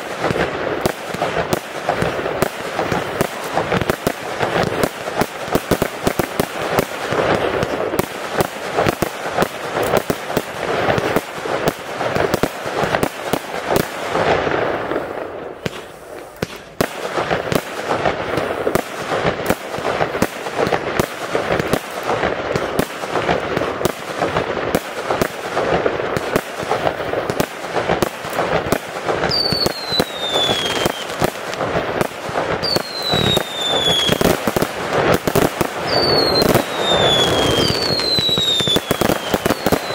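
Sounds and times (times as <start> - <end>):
fireworks bangs and crackling: 0.0 - 39.9
falling firework whistles: 29.3 - 31.2, 32.6 - 34.4, 35.8 - 39.9.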